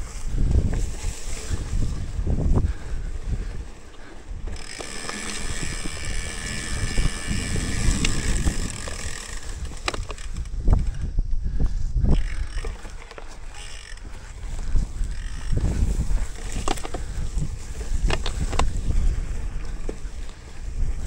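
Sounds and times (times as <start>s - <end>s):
bicycle freehub buzzing: 0.0s - 21.0s
low wind on microphone: 0.0s - 21.0s
trail rumble: 0.0s - 21.0s.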